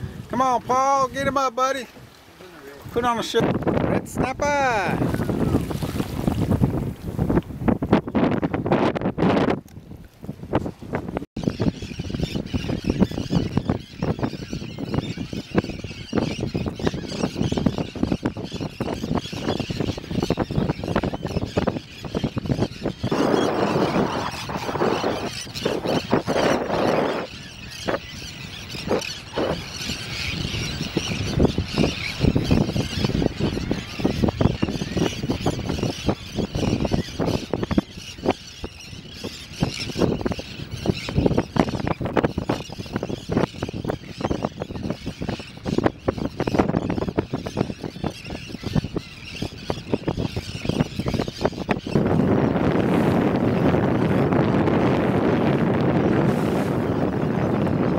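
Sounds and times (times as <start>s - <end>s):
wind buffeting microphone: 0.0s - 57.9s
water splashing: 4.9s - 7.3s
terns and gulls calling: 11.4s - 52.7s.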